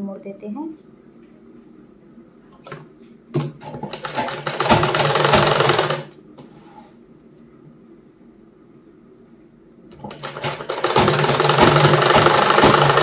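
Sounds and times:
sewing machine stitching: 0:03.6 - 0:06.1, 0:09.9 - 0:13.0.

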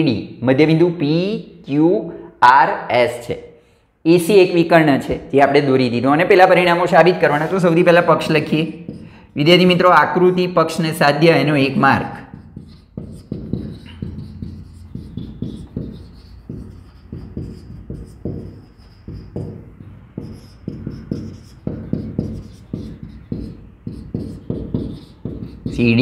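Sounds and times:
marker writing on whiteboard: 0:07.1 - 0:26.0
steady low hum: 0:12.2 - 0:25.8.

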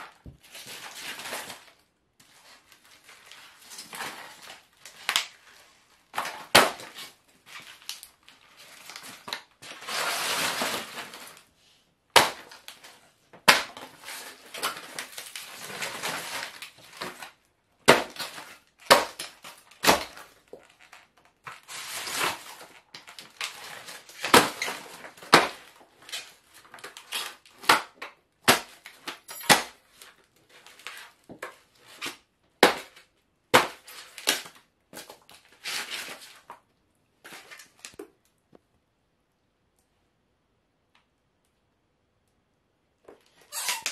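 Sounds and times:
foam and plastic cracking: 0:00.0 - 0:11.5, 0:12.1 - 0:38.5
heels crushing foam model aeroplane: 0:06.1 - 0:08.0, 0:12.1 - 0:29.8.

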